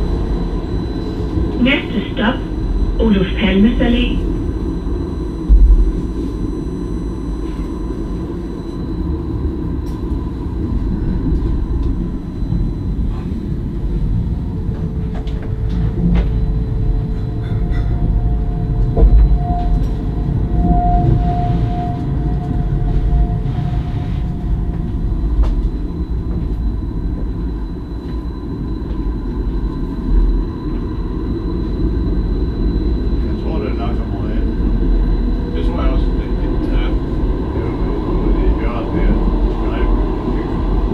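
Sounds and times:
steady whine: 0.0 - 40.9
tram rumbling on track: 0.0 - 40.9.

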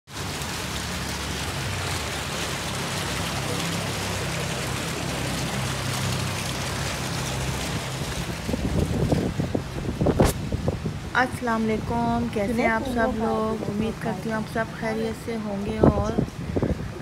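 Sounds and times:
fountain water splashing: 0.1 - 17.0.

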